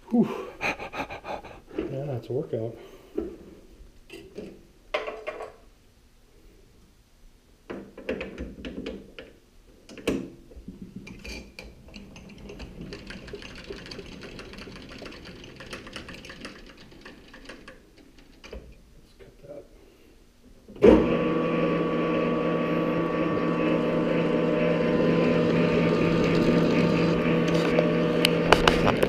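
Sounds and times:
lathe whirring with fast ticking: 11.9s - 17.7s, 23.7s - 28.6s.

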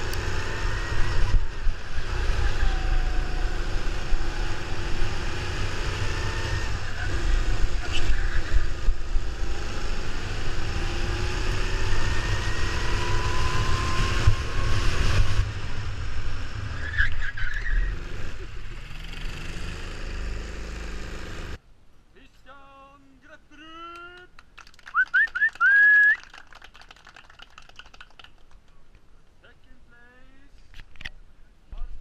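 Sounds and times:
go-kart engine running: 0.0s - 16.7s.

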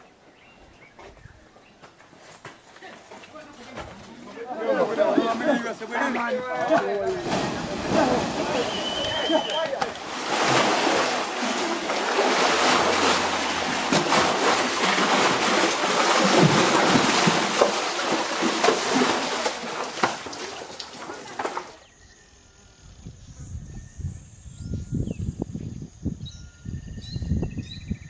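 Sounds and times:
cattle splashing through water: 6.6s - 21.8s.

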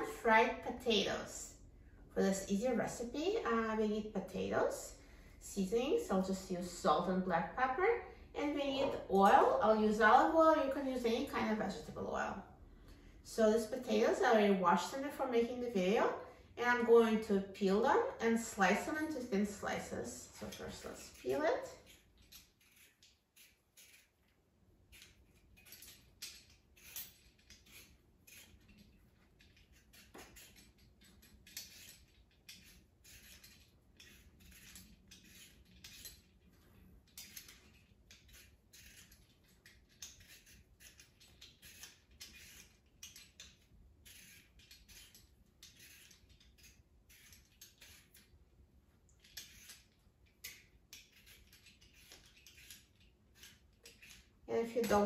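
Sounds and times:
peeler scraping potato skin: 16.7s - 48.4s, 49.0s - 55.0s.

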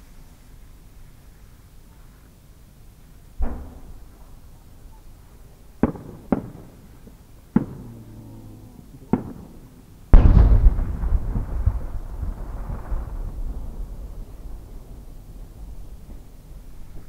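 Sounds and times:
firework cracks: 3.4s - 4.4s, 5.8s - 8.0s, 9.0s - 17.0s
firework shell boom: 3.4s - 4.4s.

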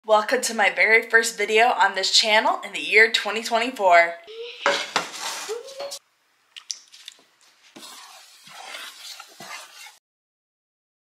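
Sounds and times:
eggs sizzling in frying pan: 7.5s - 10.0s.

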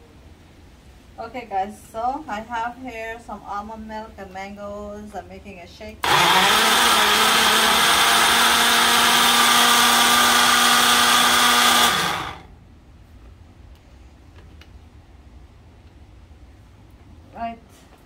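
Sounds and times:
blender motor running: 6.0s - 12.5s.

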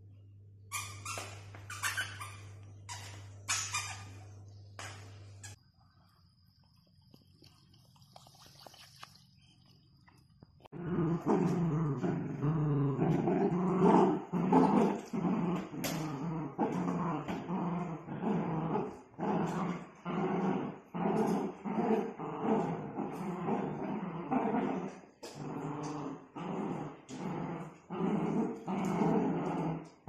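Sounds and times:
dogs growling in play: 10.7s - 30.0s.

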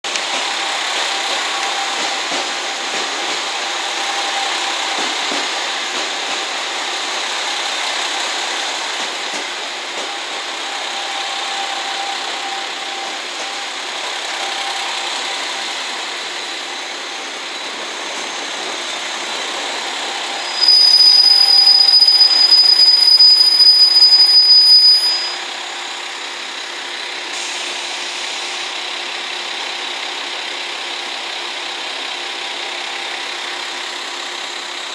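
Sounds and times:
diesel railcar running: 0.0s - 34.9s
loud high steady tone: 10.0s - 28.5s.

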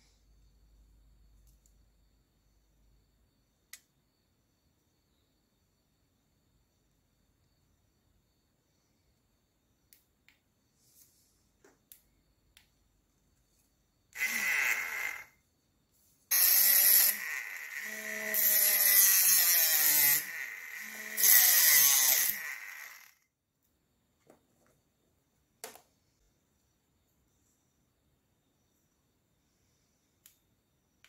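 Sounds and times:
mini grinder motor whining: 14.2s - 15.4s, 16.3s - 23.2s.

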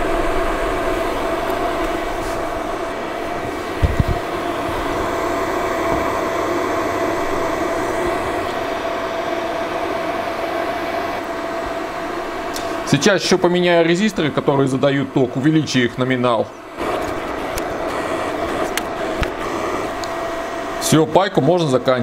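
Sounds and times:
dull low thumps: 0.0s - 6.2s
fan running with whine: 0.0s - 22.0s.

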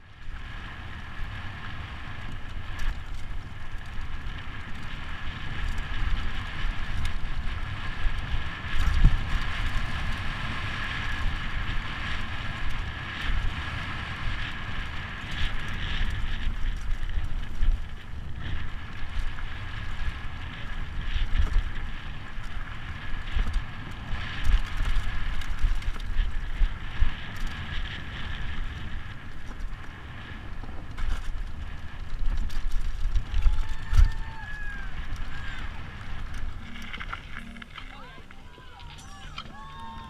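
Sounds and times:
mountain bike rumbling on dirt: 0.0s - 38.6s
wind buffeting microphone: 0.0s - 40.0s.

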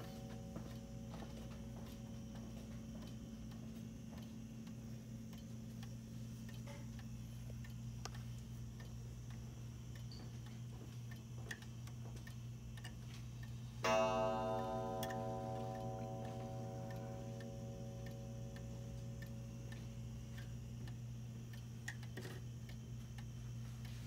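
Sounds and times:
wall clock ticking: 0.0s - 24.0s
clock strike ringing: 13.8s - 19.8s.

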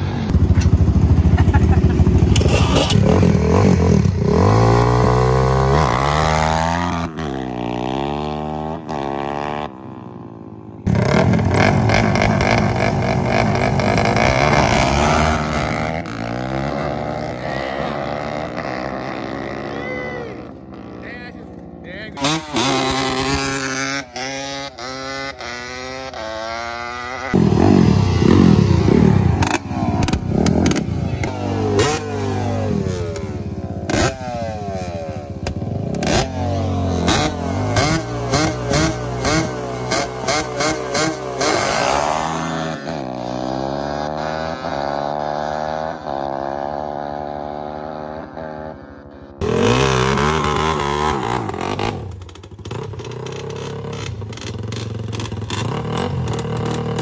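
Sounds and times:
quad engines revving and accelerating: 0.0s - 57.0s
exhaust cracks: 27.4s - 32.0s, 49.4s - 57.0s.

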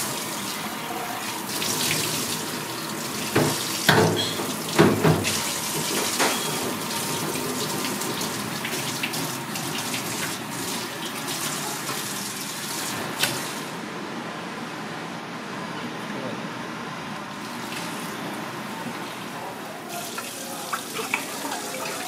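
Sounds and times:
water running into metal sink: 0.0s - 13.7s, 19.8s - 22.0s.

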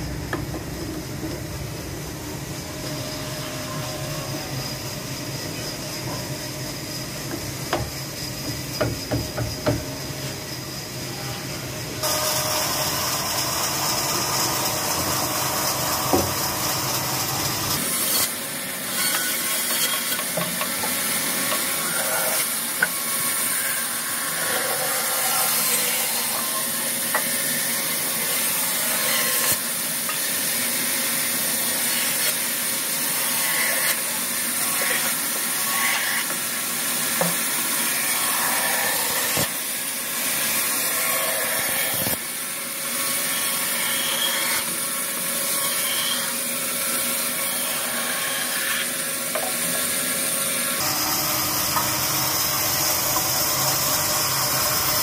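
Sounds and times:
bandsaw cutting wood: 12.0s - 42.3s, 43.0s - 55.0s.

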